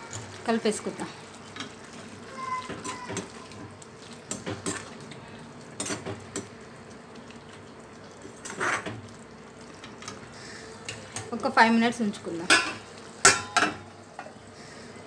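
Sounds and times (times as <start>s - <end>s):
spatula scraping metal pan: 8.4s - 9.0s.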